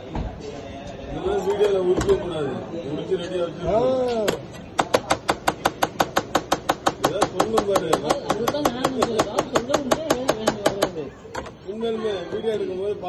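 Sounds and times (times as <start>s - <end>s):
scraper blade chopping on metal counter: 4.8s - 11.0s.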